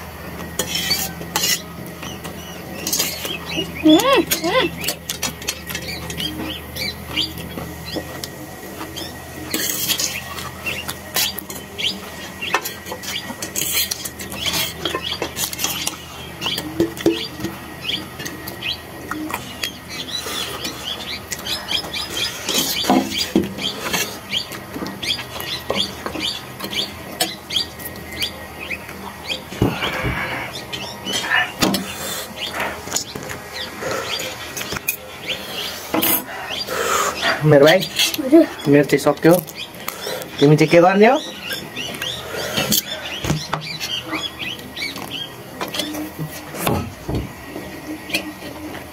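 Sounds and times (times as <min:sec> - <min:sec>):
people eating noodles: 0:00.0 - 0:48.9.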